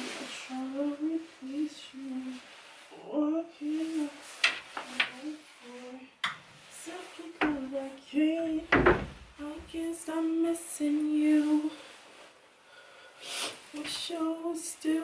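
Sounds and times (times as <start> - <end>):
clicks and knocks in wardrobe: 8.7 - 9.3.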